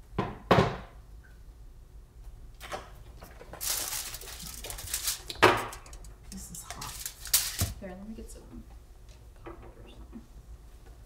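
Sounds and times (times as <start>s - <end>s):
aluminium foil crinkling: 3.3s - 7.9s.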